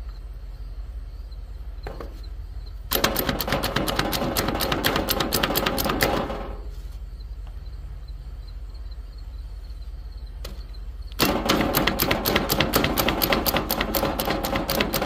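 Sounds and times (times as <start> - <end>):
food chopper clacking: 2.9 - 6.3, 11.2 - 15.0.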